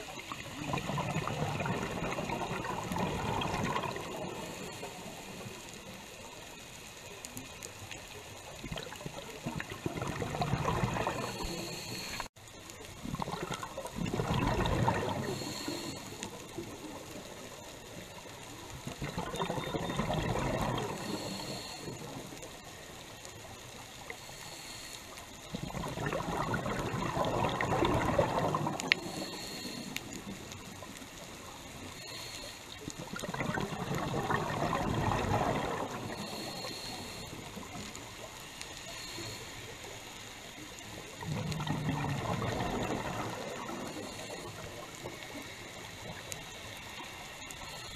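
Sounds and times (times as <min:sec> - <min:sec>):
scuba regulator exhaust bubbles: 0:00.0 - 0:05.6, 0:08.6 - 0:12.3, 0:12.9 - 0:22.7, 0:25.4 - 0:39.4, 0:40.8 - 0:47.9.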